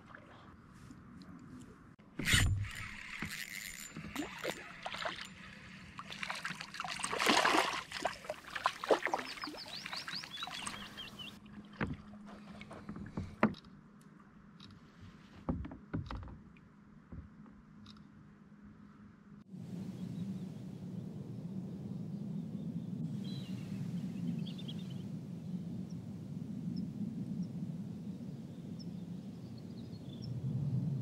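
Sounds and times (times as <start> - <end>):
water sloshing against kayak hull: 0.0 - 13.6.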